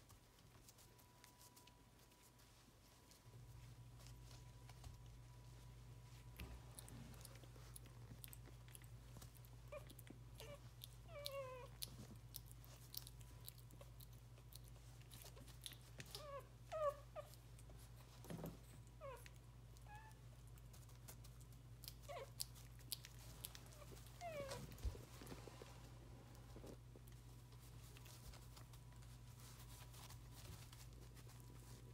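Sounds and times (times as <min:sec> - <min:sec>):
puppy whimpering: 0:09.2 - 0:12.1, 0:15.2 - 0:17.5, 0:19.0 - 0:20.2, 0:21.9 - 0:25.6.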